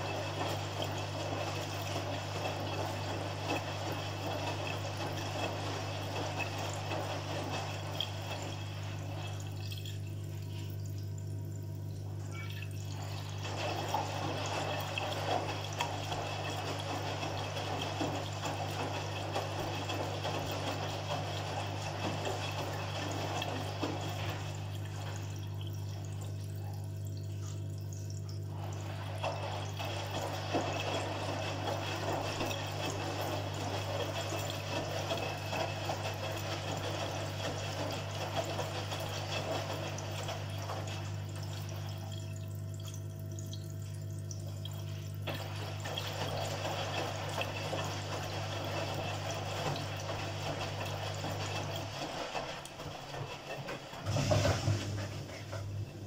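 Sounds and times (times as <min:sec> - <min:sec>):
water pouring into washing machine: 0:00.0 - 0:56.0.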